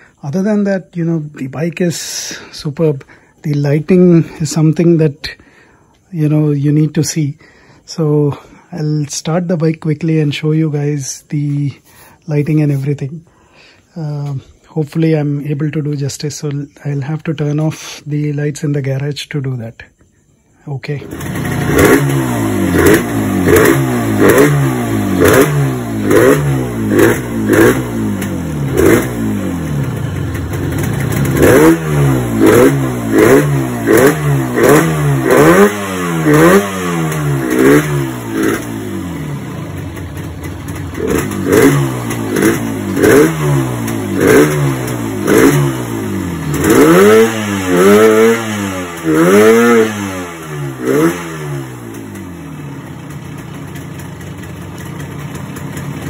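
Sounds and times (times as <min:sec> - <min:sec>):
motorcycle engine revving: 0:20.9 - 0:56.0.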